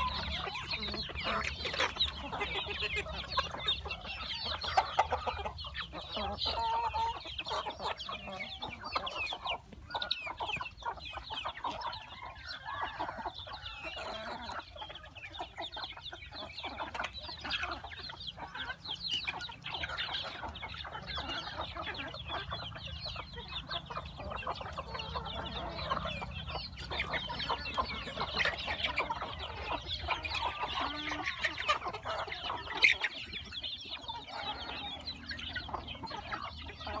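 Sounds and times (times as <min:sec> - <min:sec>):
young chickens clucking: 0:00.0 - 0:37.0.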